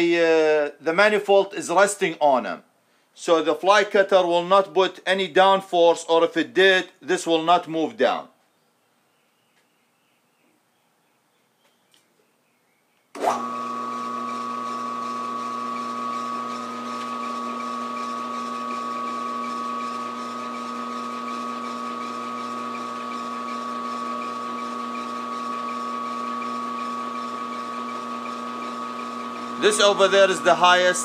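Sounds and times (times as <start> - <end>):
milling machine motor whine: 13.2 - 31.0.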